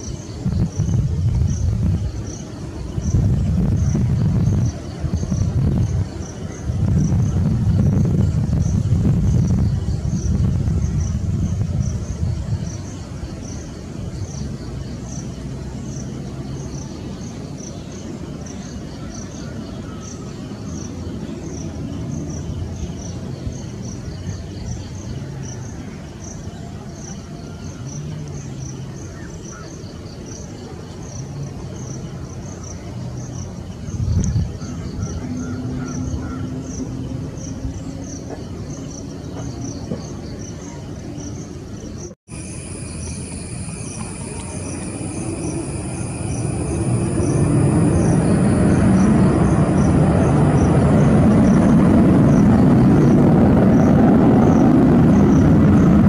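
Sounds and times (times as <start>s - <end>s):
distant jet engines rumbling: 0.0s - 26.9s, 27.7s - 56.0s
insects chirping: 0.0s - 56.0s
high-pitched jet whine: 42.0s - 56.0s.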